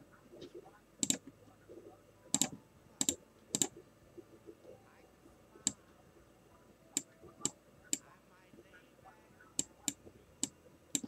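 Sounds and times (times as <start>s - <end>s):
keyboard and mouse clicks: 1.0s - 1.3s, 2.3s - 3.8s, 7.0s - 8.0s, 9.6s - 11.0s.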